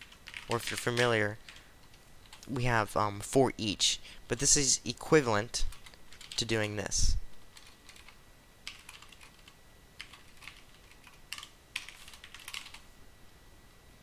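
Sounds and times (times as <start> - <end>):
typing on computer keyboard: 0.0 - 2.5, 5.7 - 6.8, 7.5 - 12.9.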